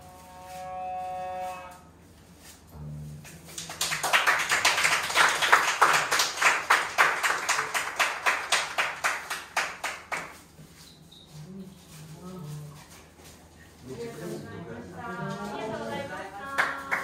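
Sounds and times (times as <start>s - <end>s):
audience applauding: 3.5s - 10.4s.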